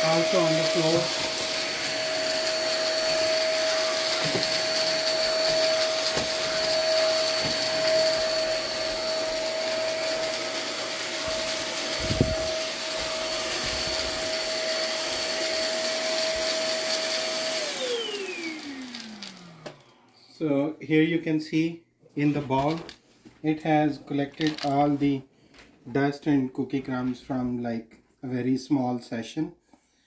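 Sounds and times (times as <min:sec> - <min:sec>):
vacuum cleaner motor whining: 0:00.0 - 0:20.2.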